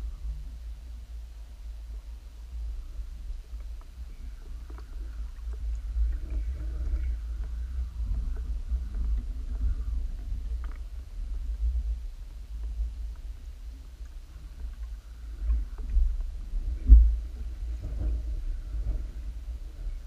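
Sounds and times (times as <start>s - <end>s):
muffled underwater rumble: 0.0s - 20.0s
faint clicks: 3.4s - 17.1s.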